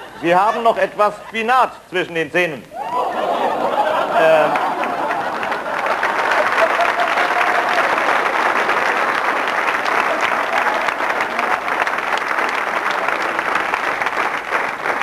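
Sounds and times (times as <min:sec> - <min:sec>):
studio audience applauding: 0:04.0 - 0:15.0.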